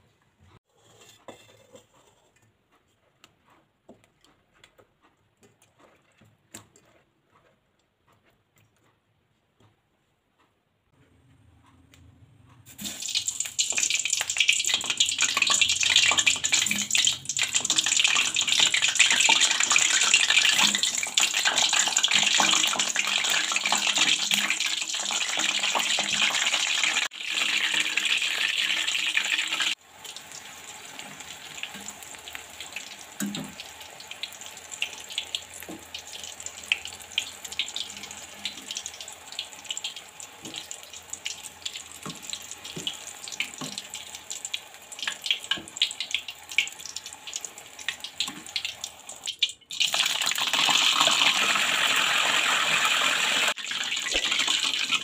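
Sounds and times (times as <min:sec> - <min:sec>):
vegetables sizzling in hot oil: 0:12.7 - 0:55.0
oil popping: 0:53.8 - 0:55.0.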